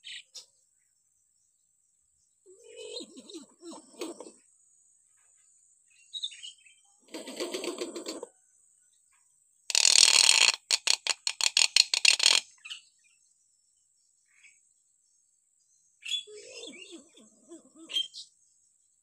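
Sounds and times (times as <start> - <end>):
myna bird calling: 2.5 - 4.4
sharp clicking bird notes: 9.7 - 12.4.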